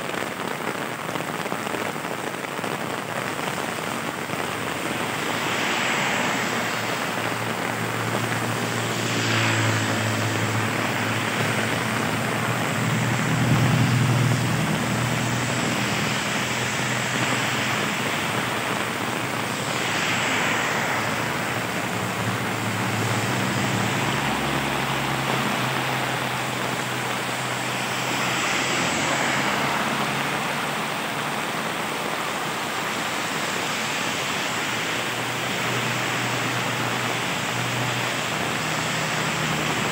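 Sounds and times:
heavy rain on pavement: 0.0s - 39.9s
vehicle engine hum: 2.8s - 39.9s
tyres swishing through water: 3.0s - 39.9s.

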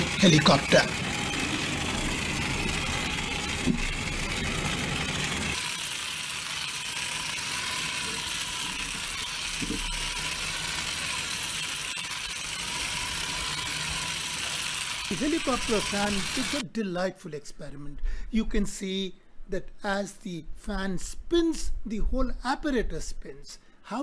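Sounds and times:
toy motor buzzing whir: 0.0s - 16.6s.

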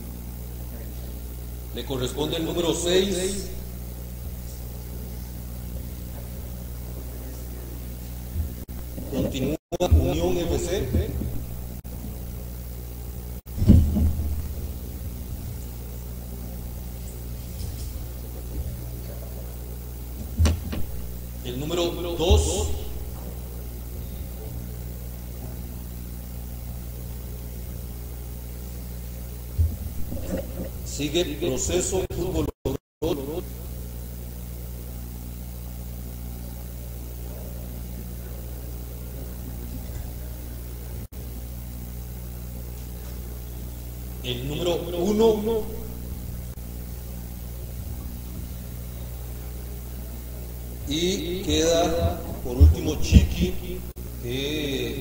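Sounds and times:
low mains hum: 0.0s - 55.0s
short thump: 13.5s - 14.7s, 20.2s - 21.1s.

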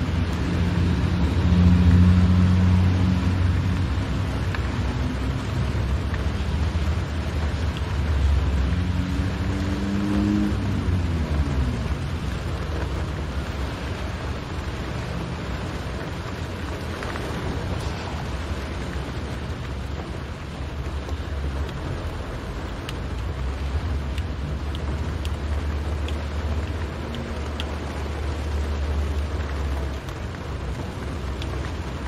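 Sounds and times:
car engine and tyres rumbling: 0.0s - 32.0s
rain hiss: 0.0s - 32.0s.

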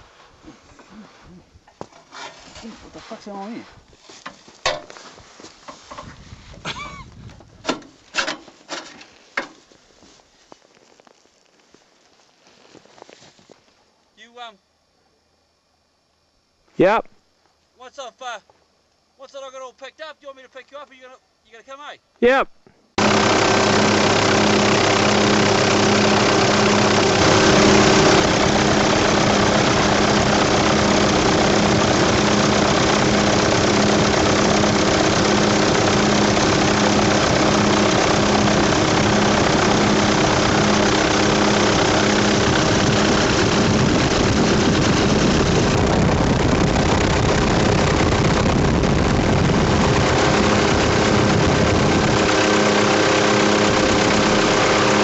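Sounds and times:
helicopter engine and rotor: 23.0s - 55.0s.

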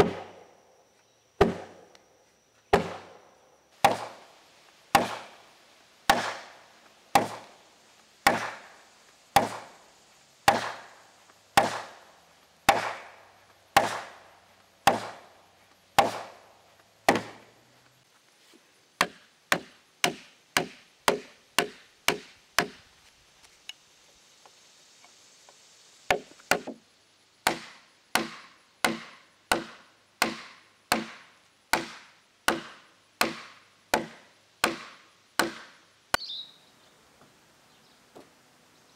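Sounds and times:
wooden mallet striking timber: 17.1s - 17.4s, 19.0s - 22.8s, 26.1s - 26.8s, 27.5s - 35.8s.

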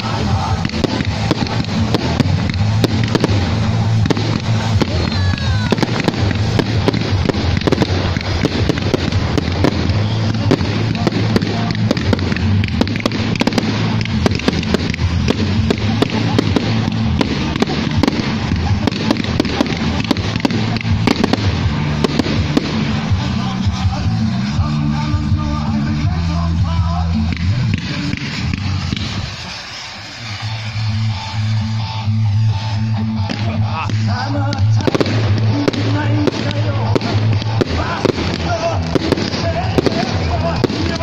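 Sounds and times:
fireworks crackling and popping: 0.0s - 41.0s
music: 0.0s - 41.0s.

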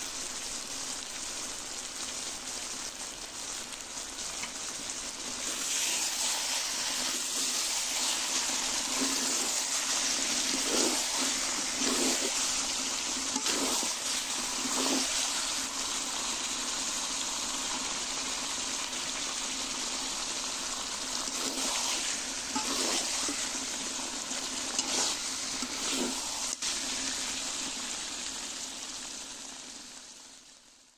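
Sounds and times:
curry sizzling in a wok: 0.0s - 30.9s
louder stirring strokes: 5.3s - 15.8s, 21.2s - 27.1s.

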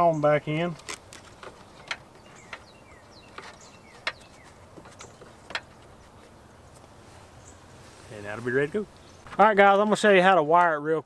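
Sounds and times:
faint birds chirping: 0.0s - 10.8s.

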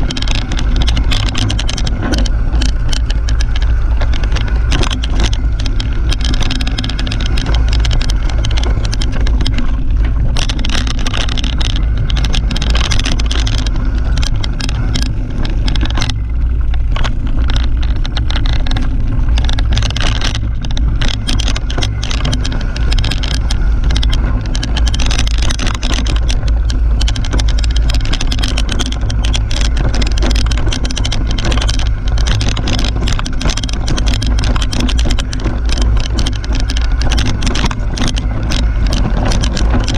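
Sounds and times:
bike rattling and knocking: 0.0s - 39.9s
tyres rumbling on dirt: 0.0s - 39.9s.

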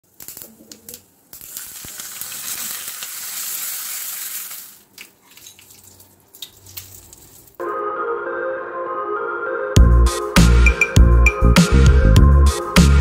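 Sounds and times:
loud dense sizzle: 0.0s - 4.9s
seeds crackling in hot oil: 0.0s - 7.6s.

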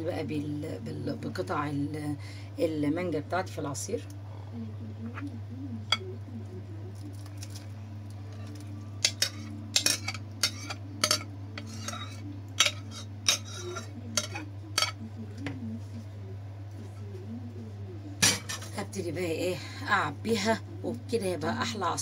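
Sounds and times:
steady low hum: 0.0s - 22.0s
cutlery clinking against dish: 9.0s - 15.0s, 18.2s - 18.7s.

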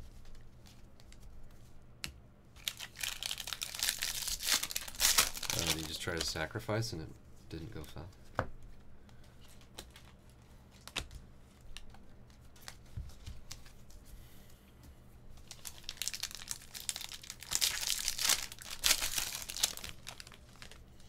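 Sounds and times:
foil wrapper crinkling and tearing: 2.6s - 6.5s, 15.4s - 20.8s.

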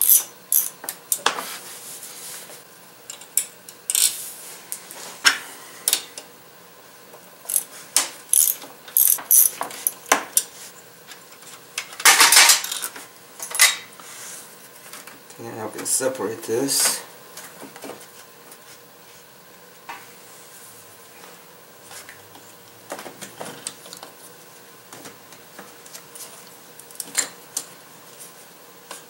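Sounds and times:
hand ratchet clicking: 7.5s - 7.7s, 8.3s - 9.5s.

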